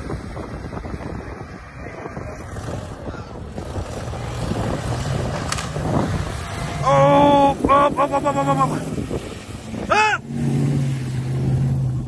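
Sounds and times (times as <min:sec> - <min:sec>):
car engine: 0:00.0 - 0:12.0
wind buffeting microphone: 0:00.0 - 0:12.0
car splashing through water: 0:01.4 - 0:12.0.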